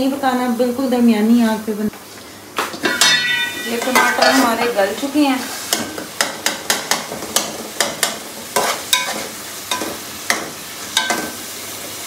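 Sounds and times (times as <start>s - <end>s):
food sizzling: 0.0s - 12.0s
spatula scraping and knocking pot: 2.8s - 4.8s, 5.6s - 11.4s.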